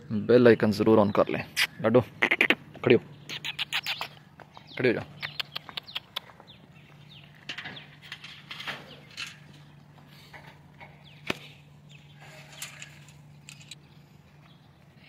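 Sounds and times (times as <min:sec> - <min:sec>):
small birds chirping: 0:00.0 - 0:15.0
steady low hum: 0:01.4 - 0:15.0
sharp clicks: 0:05.2 - 0:06.3
rustles: 0:06.9 - 0:15.0.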